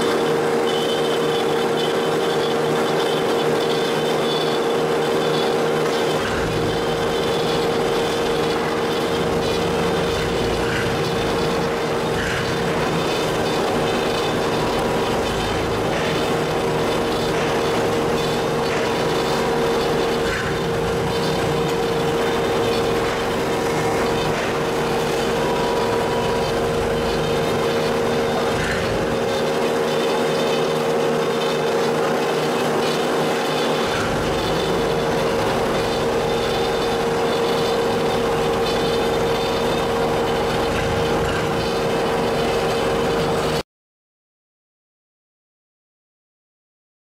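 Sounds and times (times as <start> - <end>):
bandsaw humming: 0.0 - 43.6.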